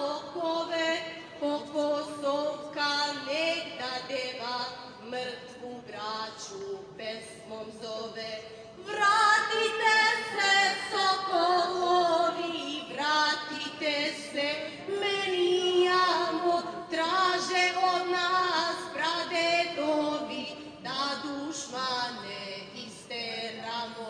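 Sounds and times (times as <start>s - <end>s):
woman singing over loudspeakers: 0.0s - 24.0s.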